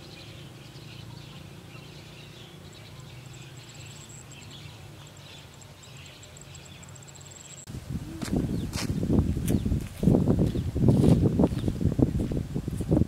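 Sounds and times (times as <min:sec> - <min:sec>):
faint bird chirps: 0:00.0 - 0:08.8
low steady hum: 0:00.0 - 0:09.4.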